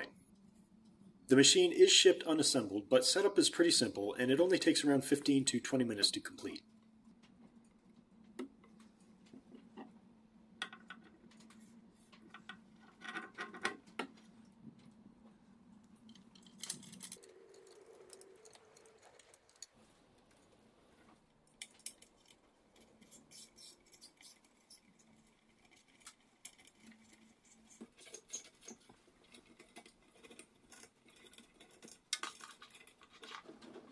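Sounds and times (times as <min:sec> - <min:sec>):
faint steady hum: 0:00.0 - 0:33.9
small metal parts rattling: 0:16.0 - 0:19.8, 0:21.5 - 0:33.9.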